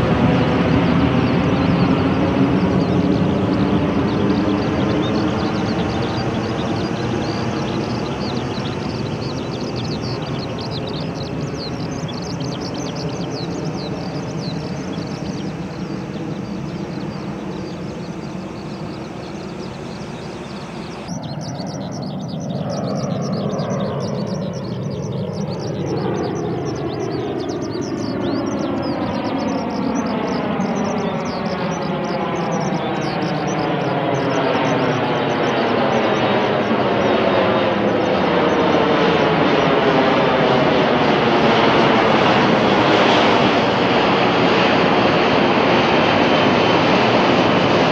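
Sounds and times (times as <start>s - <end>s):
jet engines overhead: 0.0s - 47.9s.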